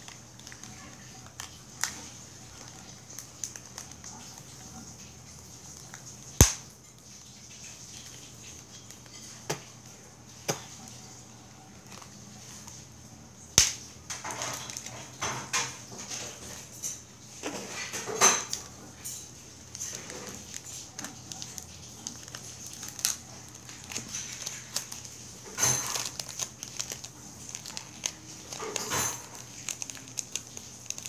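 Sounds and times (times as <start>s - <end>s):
tape rustling: 0.0s - 9.7s, 11.7s - 12.9s, 17.4s - 31.0s.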